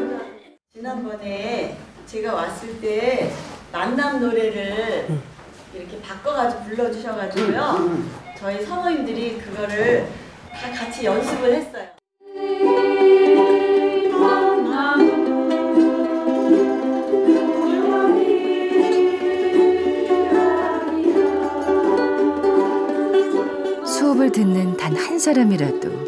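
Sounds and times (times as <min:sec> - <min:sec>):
women singing in unison: 0:12.2 - 0:26.0
ukuleles strumming: 0:12.4 - 0:26.0.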